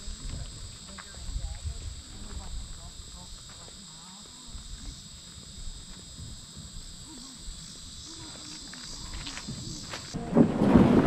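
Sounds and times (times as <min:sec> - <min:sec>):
wind rushing on microphone: 0:00.0 - 0:03.4, 0:04.5 - 0:08.1
high-pitched insect chorus: 0:00.0 - 0:10.8.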